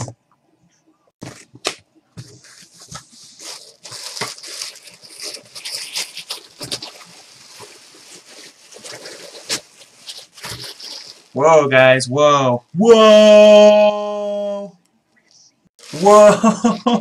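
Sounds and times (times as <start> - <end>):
wrapping paper rustling and crinkling: 1.2 - 11.4, 15.8 - 16.6.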